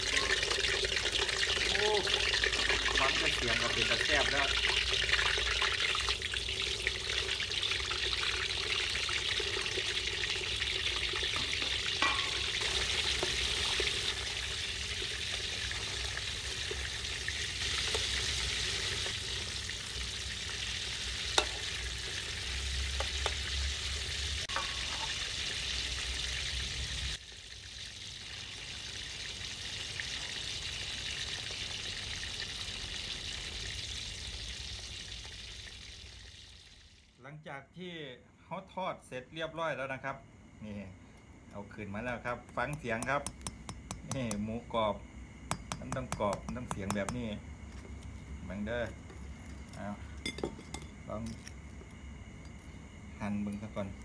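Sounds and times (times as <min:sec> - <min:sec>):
meat sizzling in hot oil: 0:00.0 - 0:37.1
ladle clicking on wok: 0:11.3 - 0:13.4, 0:21.3 - 0:21.7, 0:45.5 - 0:47.2.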